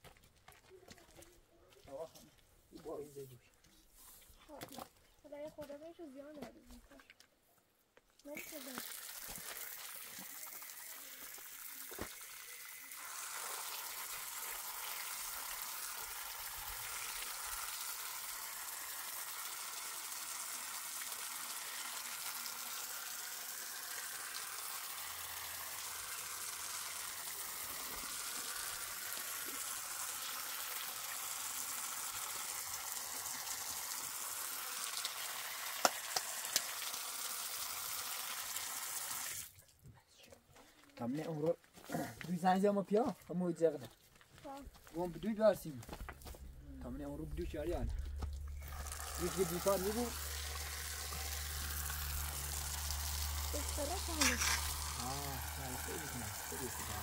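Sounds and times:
hose nozzle spraying water: 8.3 - 39.6, 47.4 - 57.0.

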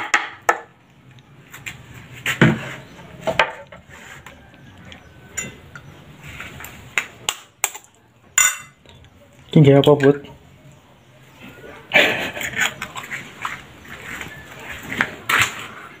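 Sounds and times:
utensil clinking on glass plate: 5.3 - 5.9, 7.7 - 8.8.

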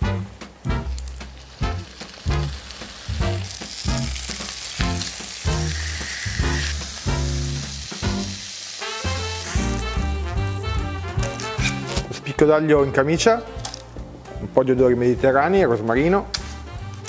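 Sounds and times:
background music with steady beat: 0.0 - 17.0
meat sizzling in a frying pan: 0.7 - 10.5.

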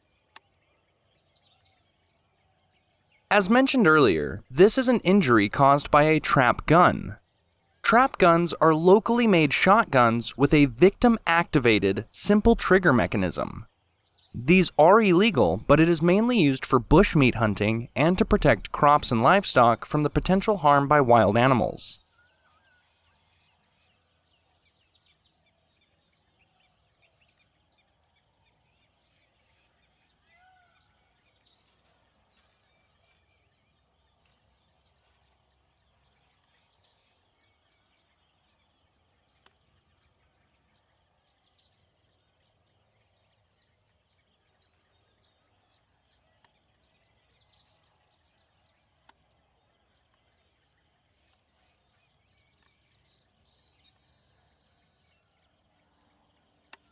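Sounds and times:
insect drone: 0.0 - 3.8, 5.8 - 8.2, 22.0 - 56.9
faint bird chirps: 0.0 - 56.9.

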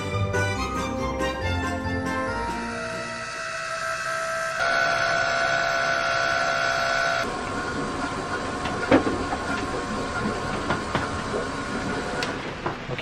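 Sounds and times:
pump running: 2.5 - 12.5.

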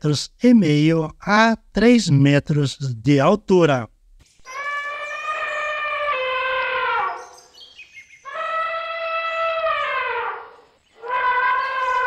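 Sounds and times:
elephant trumpeting: 4.5 - 7.5, 8.2 - 12.0.

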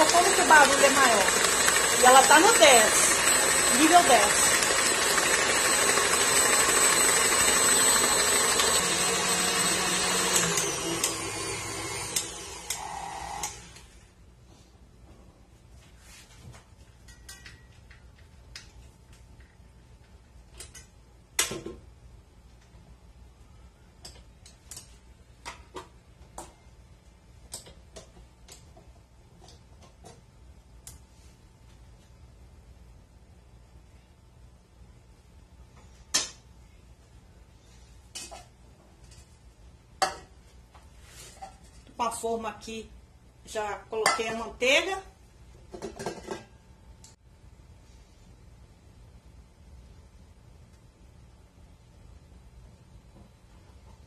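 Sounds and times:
stand mixer motor whine: 0.0 - 13.7.

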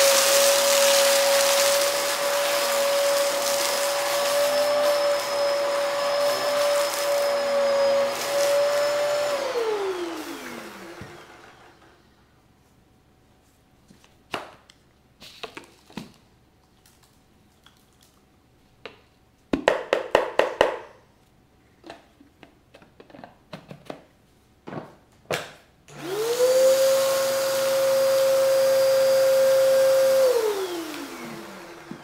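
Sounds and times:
vacuum motor whining: 0.0 - 12.1, 25.9 - 32.0.

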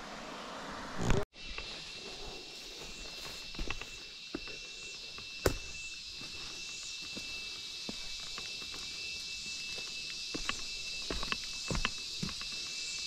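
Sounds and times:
footsteps on rock: 2.9 - 12.9.

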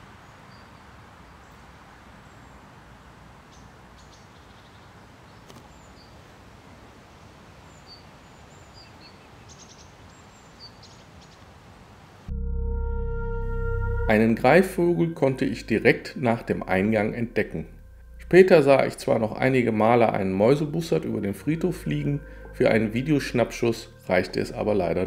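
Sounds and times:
background hiss: 0.0 - 12.3, 13.4 - 25.0
bird chirps: 7.7 - 11.4
music: 12.3 - 25.0.

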